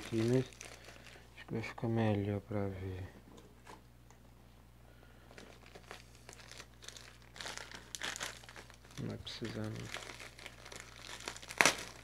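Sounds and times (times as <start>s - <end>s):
plastic mailer bag crinkling and tearing: 0.0s - 1.3s, 5.3s - 12.0s.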